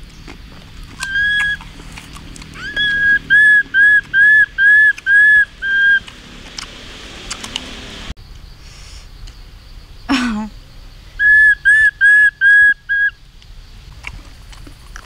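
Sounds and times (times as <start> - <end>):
high whistle notes: 2.6 - 6.1.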